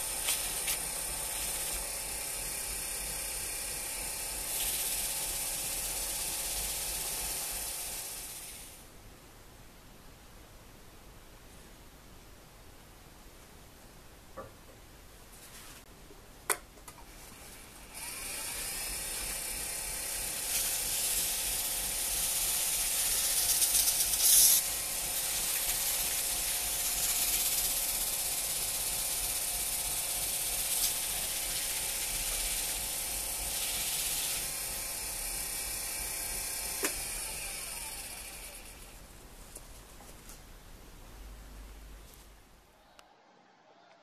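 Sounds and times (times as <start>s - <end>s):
lathe motor hum: 0.0s - 8.7s, 17.3s - 39.0s.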